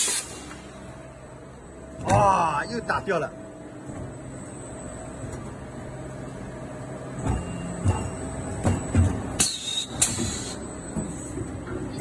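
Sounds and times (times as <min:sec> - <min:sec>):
sharp air hisses: 0:00.0 - 0:00.5, 0:09.4 - 0:10.6
machine humming: 0:00.2 - 0:12.0.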